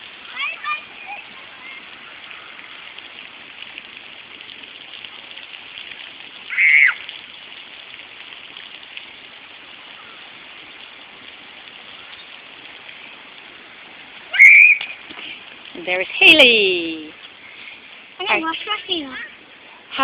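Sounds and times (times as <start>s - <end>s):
lawn sprinklers hissing: 0.0s - 20.0s
child squealing: 6.5s - 7.0s, 14.3s - 14.8s.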